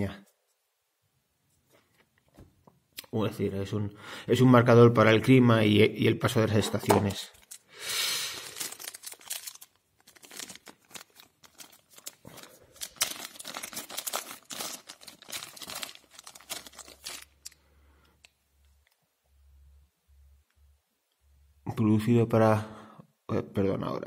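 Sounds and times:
plastic bag crinkling: 0:07.0 - 0:17.6.

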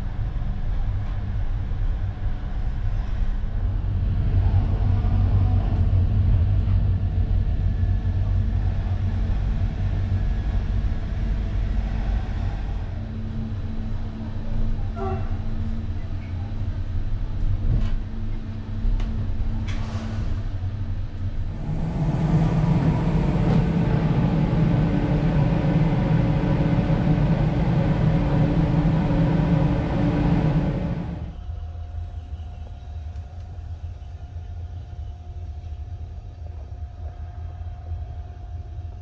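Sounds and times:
train rumbling: 0:00.0 - 0:39.0
thin whine: 0:21.4 - 0:31.4.

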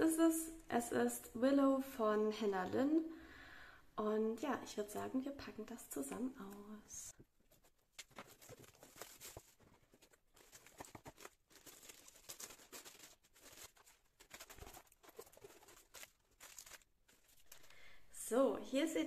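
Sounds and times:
plastic wrap and cardboard rustling: 0:07.4 - 0:18.0.

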